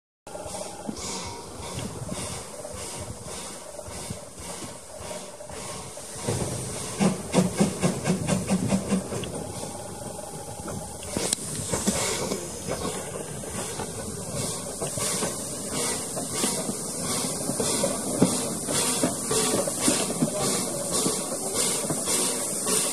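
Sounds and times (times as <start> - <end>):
locomotive exhaust chuffs: 0.3 - 22.9
steam locomotive hissing: 0.3 - 22.9.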